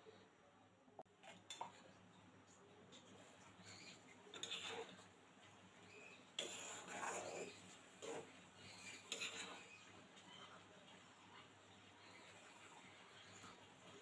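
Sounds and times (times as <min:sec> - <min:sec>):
metal spatula scraping a pan: 0:03.2 - 0:05.2, 0:05.8 - 0:10.6.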